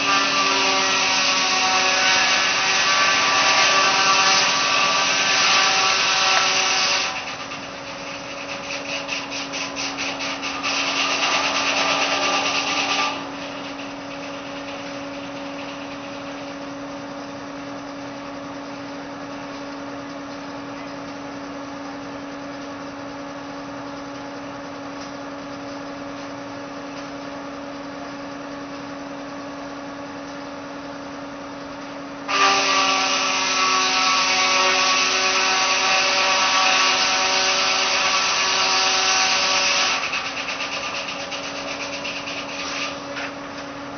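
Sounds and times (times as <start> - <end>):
saw blade cutting wood: 0.0 - 16.6, 32.3 - 43.4
saw spinning free humming: 0.0 - 17.5, 34.2 - 43.9.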